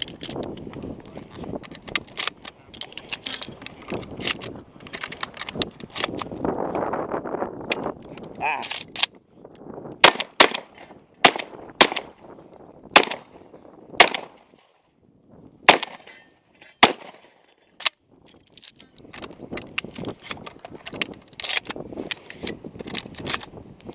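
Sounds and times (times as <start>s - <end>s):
shotgun shots: 10.0s - 12.2s, 13.0s - 13.4s, 14.0s - 14.6s, 15.7s - 16.2s, 16.8s - 17.4s.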